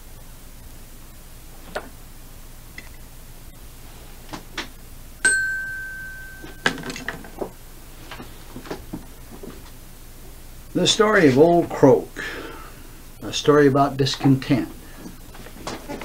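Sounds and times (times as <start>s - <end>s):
faint tape hiss and hum: 0.0s - 16.0s
bell-like ding: 5.2s - 6.9s.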